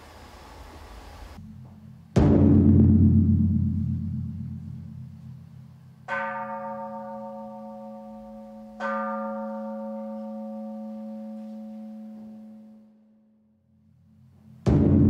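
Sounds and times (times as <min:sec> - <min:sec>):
temple bell ringing: 0:06.0 - 0:13.2.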